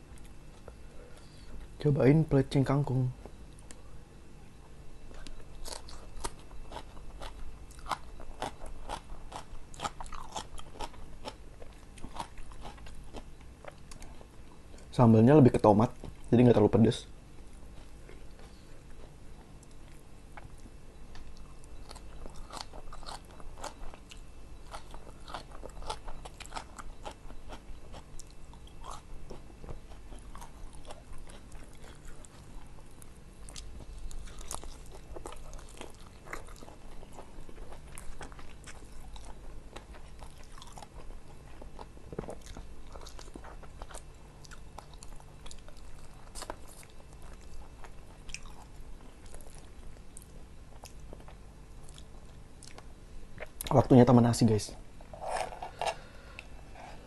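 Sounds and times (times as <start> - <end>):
chewing and crunching food: 5.0 - 53.8.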